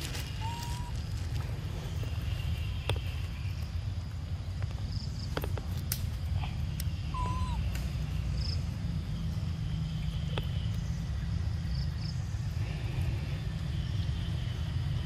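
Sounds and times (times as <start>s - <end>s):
faint high chirps: 6.8s - 7.7s.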